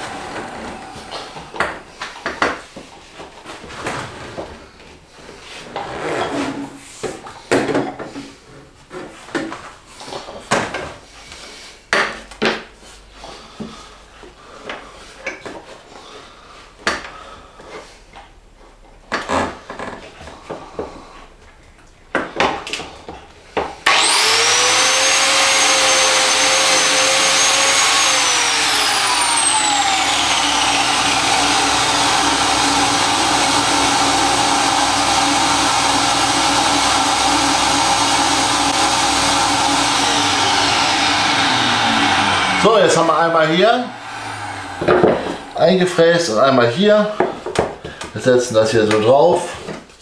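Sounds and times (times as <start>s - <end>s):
biscuit joiner whining: 0.0s - 2.5s, 23.8s - 46.8s
shop vacuum running: 0.0s - 2.6s, 23.6s - 47.2s.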